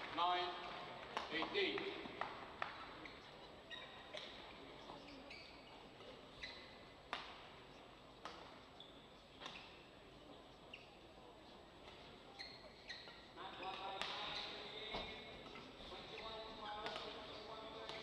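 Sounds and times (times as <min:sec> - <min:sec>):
shoes squeaking on court: 0:02.6 - 0:18.0
racket hitting shuttlecock: 0:07.1 - 0:07.5, 0:08.2 - 0:08.6, 0:16.8 - 0:18.0.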